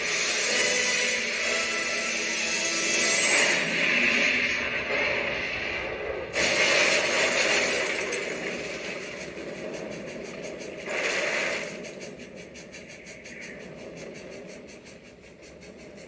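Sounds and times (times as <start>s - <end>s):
loud hissing steam rush: 0.0s - 4.0s, 6.4s - 15.0s.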